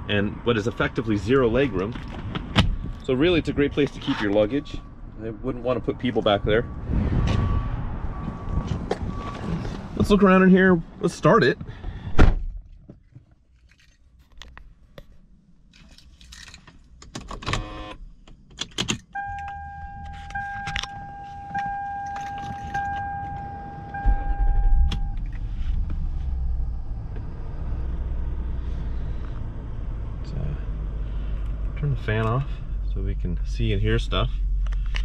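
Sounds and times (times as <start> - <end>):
car engine starting and idling: 13.6 - 35.0
car electronic chime: 19.2 - 25.3
keys jingling: 20.0 - 23.2.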